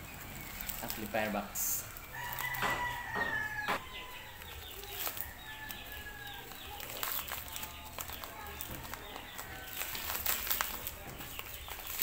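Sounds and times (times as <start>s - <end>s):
plastic wrapping rustling: 0.0s - 12.0s
rooster crowing: 2.1s - 4.5s.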